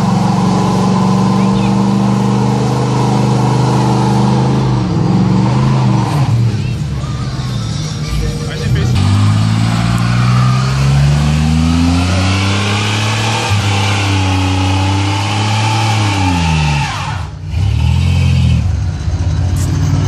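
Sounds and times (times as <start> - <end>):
truck engine revving: 0.0 - 20.0
tyres squealing on asphalt: 12.7 - 18.7.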